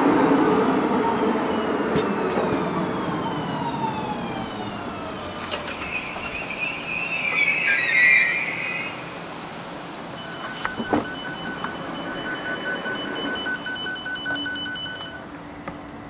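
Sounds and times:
two-pitch electronic beeping: 10.2s - 15.2s.

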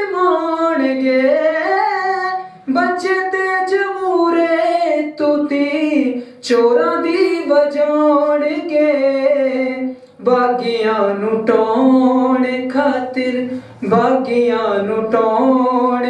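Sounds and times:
person singing unaccompanied: 0.0s - 16.0s.

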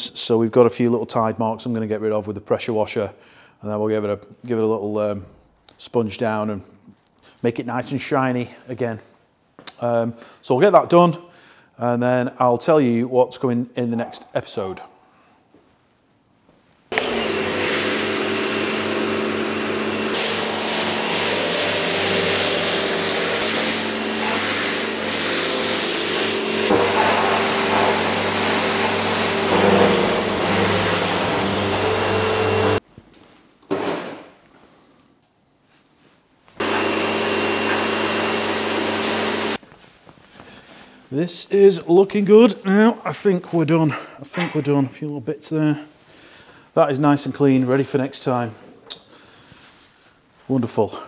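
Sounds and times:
pressure washer pump humming: 16.9s - 32.8s, 36.6s - 39.6s
water jet hissing: 16.9s - 32.8s, 36.6s - 39.6s.

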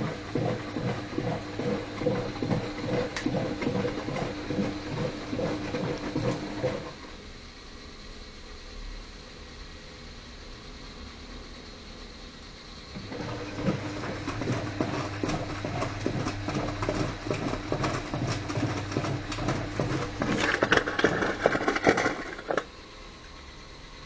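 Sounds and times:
laundry and water sloshing: 0.0s - 6.9s, 13.0s - 22.6s
washing machine motor hum: 0.0s - 7.3s, 12.5s - 24.0s.

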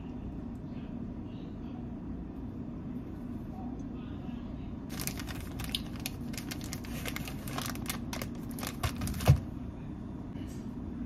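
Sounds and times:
plastic packaging crackling: 4.9s - 9.5s.

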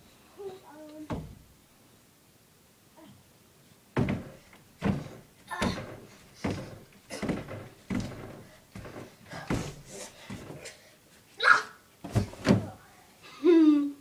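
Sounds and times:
dull thuds on bedding: 1.0s - 1.5s, 3.9s - 10.8s, 12.0s - 12.8s
fabric rustling: 4.0s - 11.3s.

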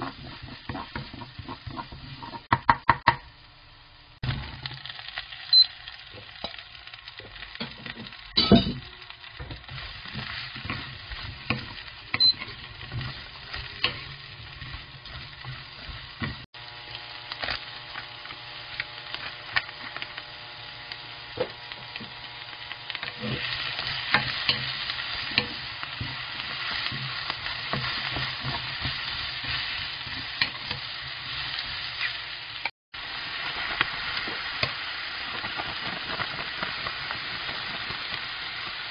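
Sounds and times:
spatula scraping a pan: 0.0s - 2.5s, 9.5s - 16.5s, 23.0s - 32.3s
vegetables sizzling in oil: 0.0s - 38.9s.

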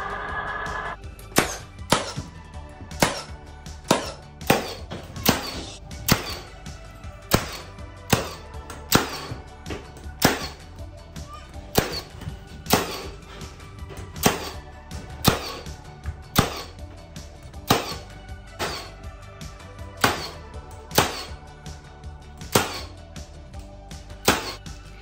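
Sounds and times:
nail gun firing: 10.2s - 10.6s.

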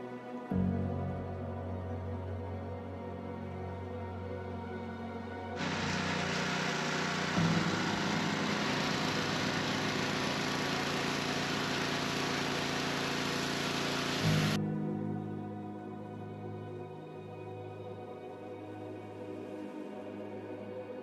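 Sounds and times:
pressure washer water jet hiss: 5.6s - 14.6s
small engine running: 5.6s - 14.6s.

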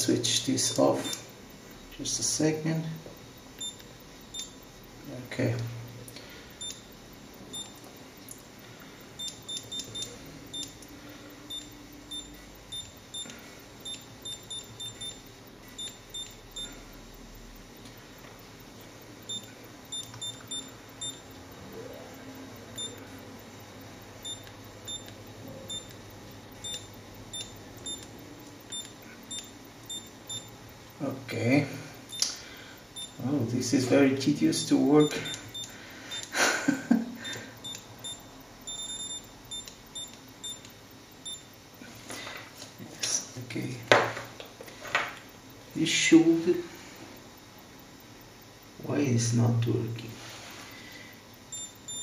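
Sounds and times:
short high electronic beeps: 37.6s - 40.6s.

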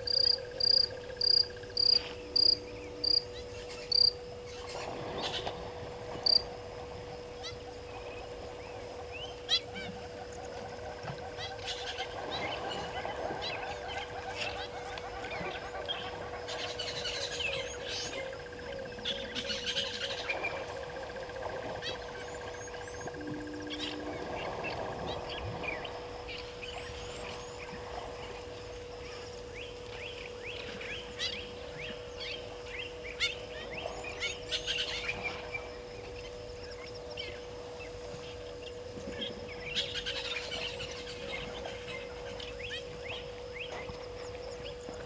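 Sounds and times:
steady droning tone: 0.0s - 45.0s
wild birds chirping: 0.0s - 45.0s.

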